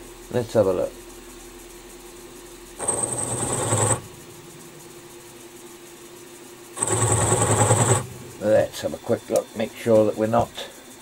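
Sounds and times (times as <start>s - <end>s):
milling machine spindle hum: 0.0s - 11.0s
boring tool scraping with whine: 2.8s - 4.2s.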